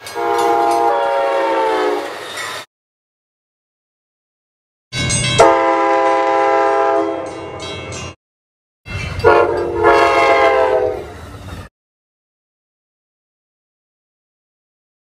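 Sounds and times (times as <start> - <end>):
passing train rumble: 0.0 - 2.7, 8.9 - 11.7
train air horn blasts: 0.1 - 2.2, 5.4 - 7.4, 9.2 - 11.1.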